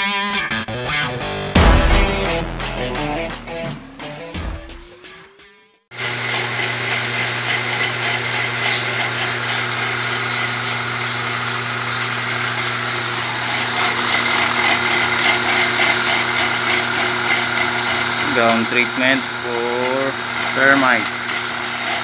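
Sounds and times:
music: 0.0s - 5.9s
power sprayer pump humming: 3.1s - 5.3s, 6.0s - 22.0s.

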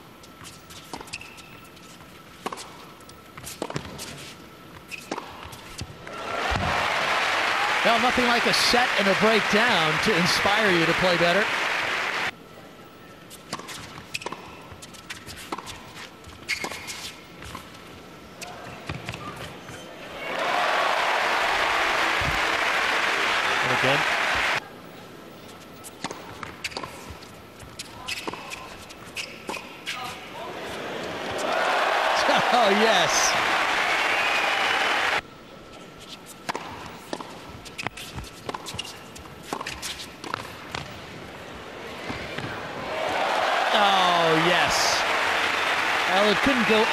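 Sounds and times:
tennis ball bouncing: 36.4s - 41.0s
players' footsteps: 42.0s - 46.9s.

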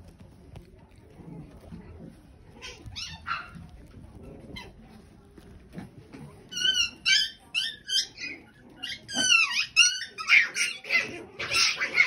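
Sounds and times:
puppies whining and yelping: 6.6s - 12.0s.

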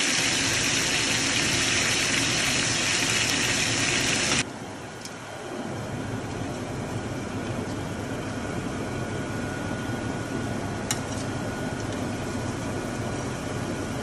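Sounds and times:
chicken sizzling in hot oil: 0.0s - 4.4s.

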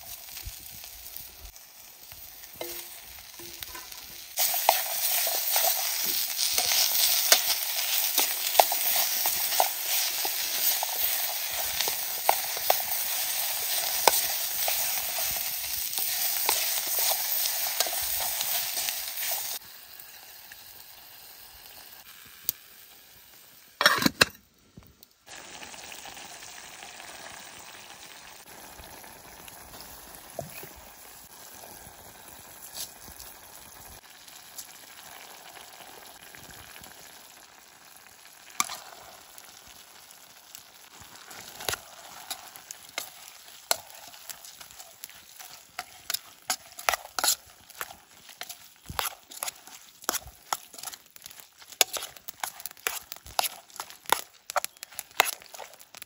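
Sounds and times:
meat and vegetables sizzling: 0.0s - 56.0s
spatula scraping a pan: 2.6s - 19.6s, 41.2s - 55.8s.

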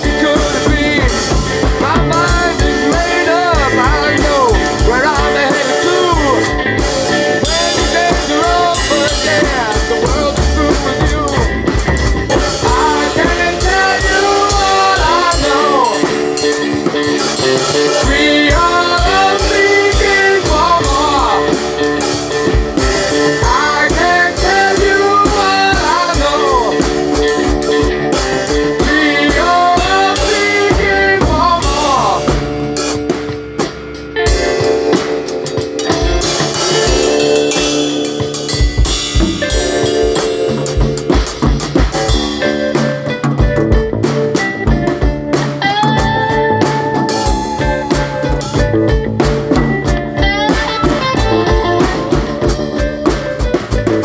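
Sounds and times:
person singing: 0.0s - 32.6s, 45.6s - 49.6s, 50.2s - 54.0s
drum kit playing: 0.0s - 54.0s
guitar: 0.0s - 54.0s.

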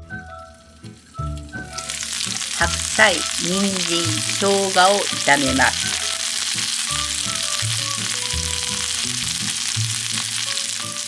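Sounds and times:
background music: 0.0s - 11.0s
vegetables sizzling in frying pan: 0.4s - 11.0s.

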